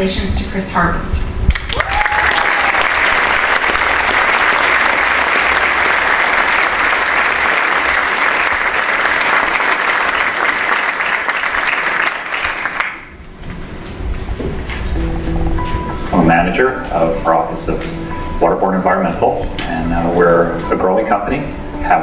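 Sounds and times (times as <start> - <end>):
audience applauding: 1.5 - 13.2.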